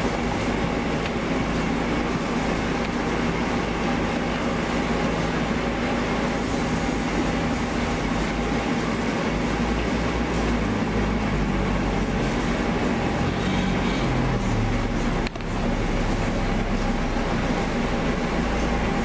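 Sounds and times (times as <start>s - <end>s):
machinery droning: 0.0s - 19.0s
low hum: 13.2s - 19.0s.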